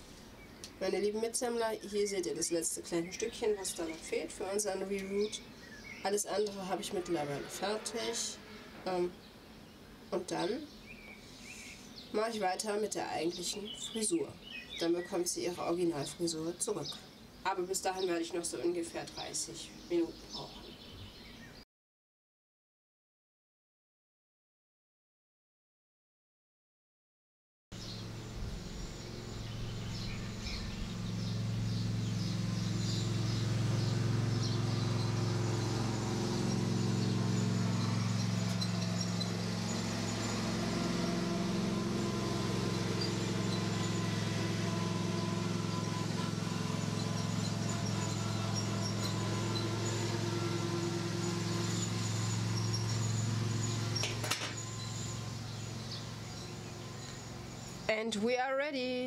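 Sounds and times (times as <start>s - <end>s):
faint bird chirps: 4.8s - 12.4s, 27.8s - 58.2s
steady low hum: 27.8s - 58.1s.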